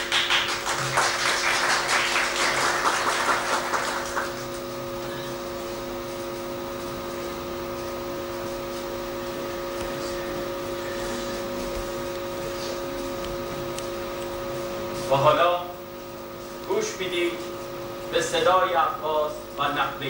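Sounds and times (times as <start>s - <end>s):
audience applauding: 0.0s - 4.7s
electrical hum with tones: 0.0s - 20.0s.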